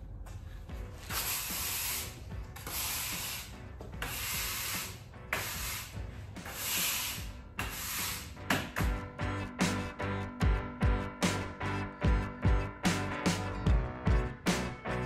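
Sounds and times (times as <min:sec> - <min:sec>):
push broom sweeping concrete: 0:01.0 - 0:08.8.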